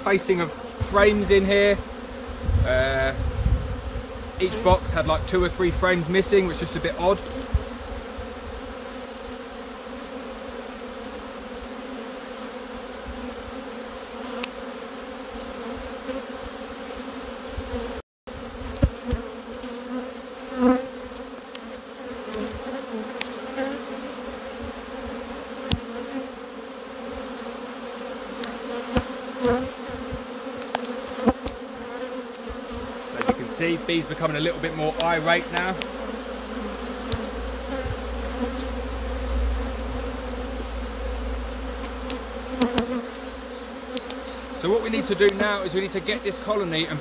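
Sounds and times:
honeybees buzzing: 0:00.0 - 0:47.0.

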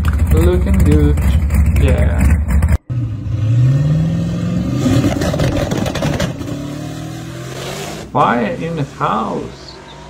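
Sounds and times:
car engine rumbling: 0:00.0 - 0:10.0
drag car accelerating hard: 0:00.0 - 0:10.0.

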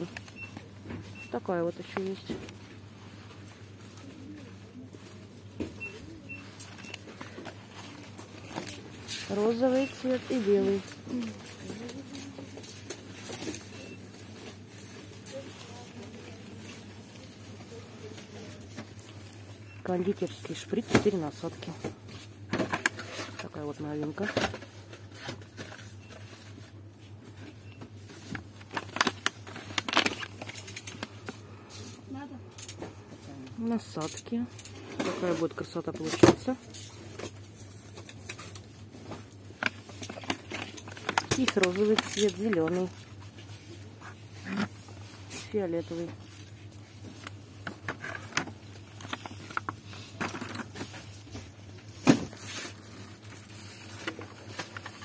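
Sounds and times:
plastic packaging crackling: 0:06.4 - 0:21.7, 0:28.1 - 0:31.7, 0:33.6 - 0:55.0.

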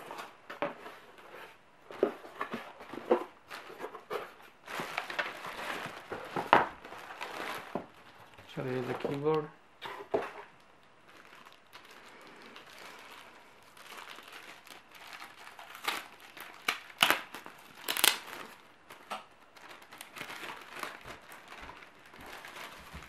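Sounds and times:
plastic bag crinkling: 0:02.4 - 0:23.0.

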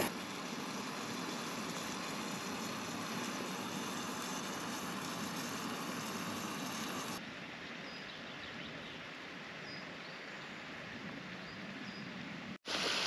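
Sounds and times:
outdoor hush: 0:00.0 - 0:07.2.

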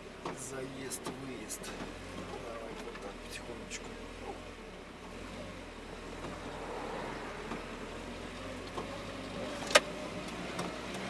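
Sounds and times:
road noise: 0:00.0 - 0:11.0
van engine hum: 0:00.0 - 0:11.0.

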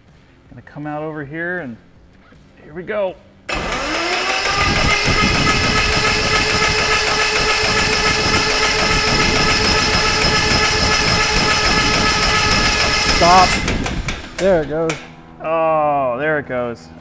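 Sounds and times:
electric starter whine: 0:03.5 - 0:15.4
mechanical drone: 0:03.5 - 0:16.0.

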